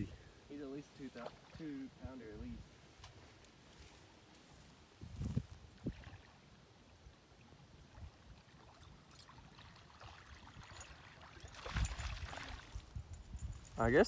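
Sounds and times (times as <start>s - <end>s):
wind rumble on microphone: 4.9s - 6.3s, 10.3s - 14.0s.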